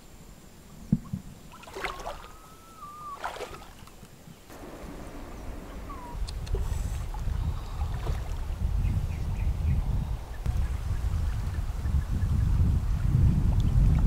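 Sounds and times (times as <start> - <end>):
water splashing: 1.4 - 8.8
sharp splashes: 1.5 - 2.4, 3.0 - 8.6
low rumble: 4.5 - 14.0.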